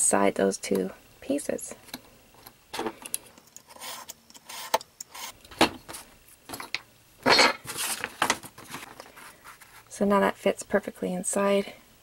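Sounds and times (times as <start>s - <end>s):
handling noise: 5.4s - 9.9s.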